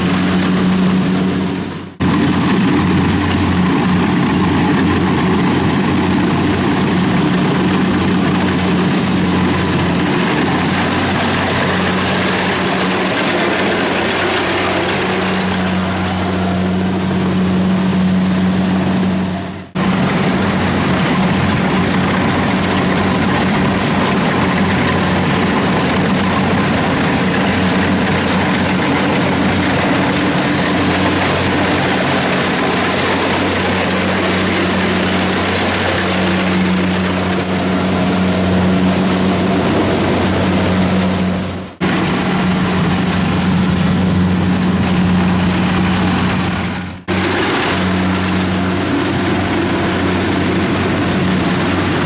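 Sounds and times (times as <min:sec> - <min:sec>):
diesel engine running under load: 0:00.0 - 0:52.0.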